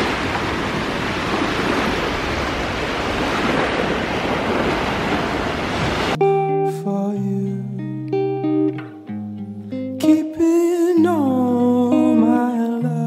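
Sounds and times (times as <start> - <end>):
waves washing on a beach: 0.0 - 6.2
wind on microphone: 0.0 - 6.2
acoustic guitar music: 6.1 - 13.0.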